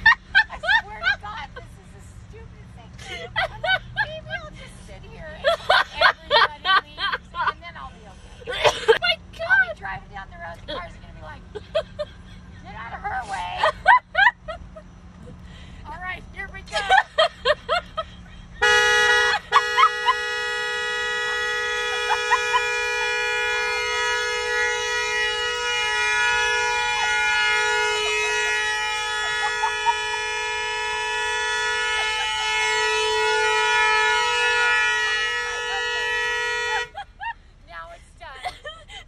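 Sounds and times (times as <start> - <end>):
car horn sounding continuously: 0.0 - 38.8.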